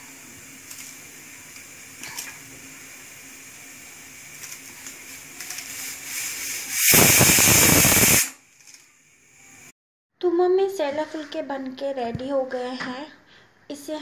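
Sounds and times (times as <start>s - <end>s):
pressure cooker hissing: 0.0s - 8.4s
pressure cooker whistle: 6.4s - 8.4s.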